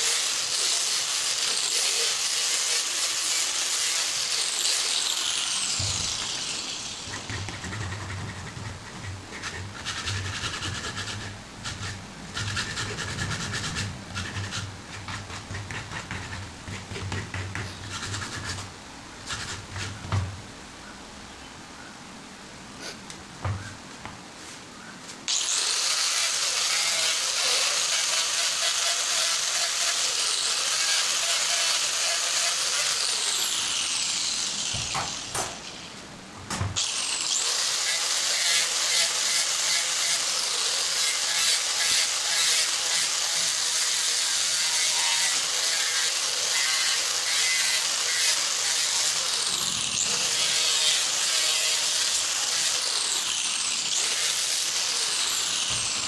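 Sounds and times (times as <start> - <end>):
angle grinder grinding steel: 0.0 - 16.4, 25.3 - 36.0, 36.8 - 56.0.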